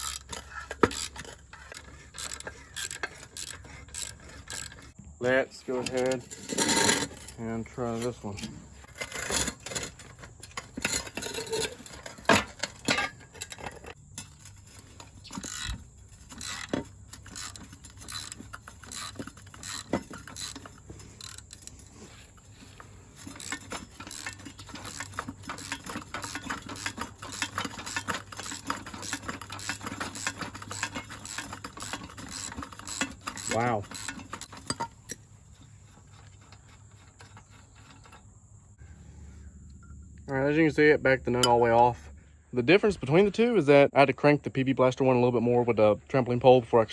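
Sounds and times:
socket ratchet clicking: 0.0s - 5.0s, 15.3s - 21.9s.

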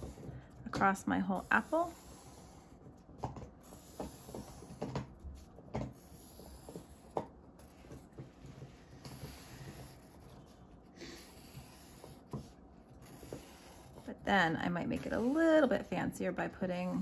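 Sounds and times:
pencil scratching on paper: 0.0s - 3.0s, 3.6s - 4.8s, 5.4s - 17.0s.

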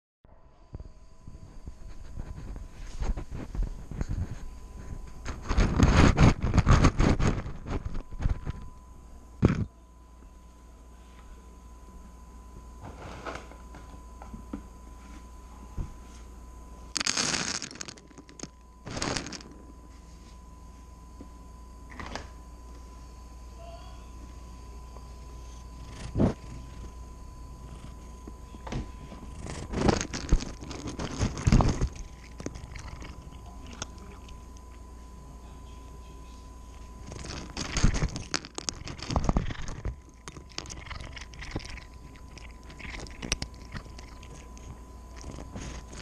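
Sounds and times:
cat crunching dry kibble: 5.3s - 8.6s, 17.0s - 19.6s, 25.5s - 26.9s, 29.1s - 34.8s, 36.8s - 46.0s
kibble rattling in food dish: 37.1s - 44.4s.

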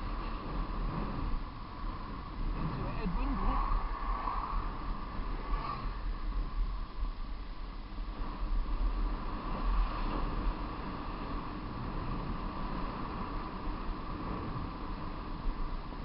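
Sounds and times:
moving vehicle rush: 0.0s - 6.9s
deep rumble: 0.0s - 16.0s
mid-pitched hum: 0.0s - 16.0s
wind buffeting microphone: 0.0s - 16.0s.

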